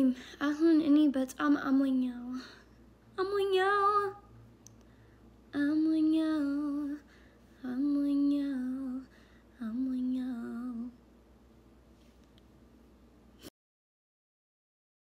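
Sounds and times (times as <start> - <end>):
girl singing unaccompanied: 0.0 - 4.4, 5.5 - 11.0.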